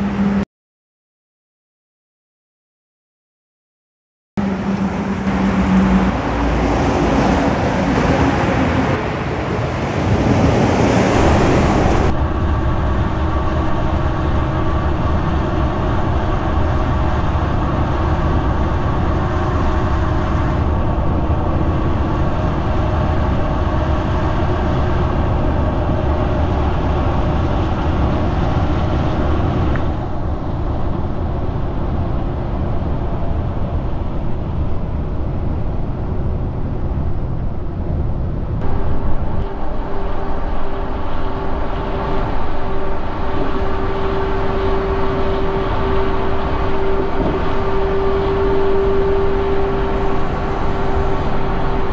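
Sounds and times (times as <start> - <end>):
highway traffic: 0.0 - 0.4, 4.4 - 51.9
road and engine drone: 0.0 - 0.5, 4.4 - 51.9
dump truck driving past: 4.4 - 12.4, 38.6 - 51.9.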